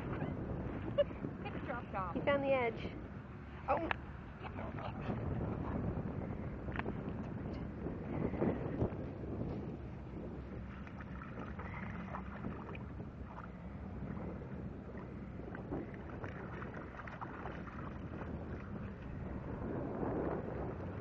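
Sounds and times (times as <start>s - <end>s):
wind rumble on microphone: 0.0s - 21.0s
dogs splashing in water: 15.0s - 19.2s.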